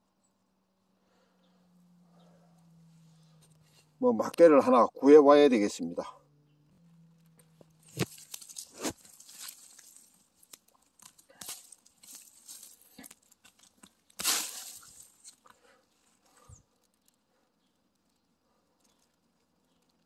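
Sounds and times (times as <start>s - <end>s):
hand scraping pine needles and soil: 2.0s - 4.8s, 7.2s - 20.0s.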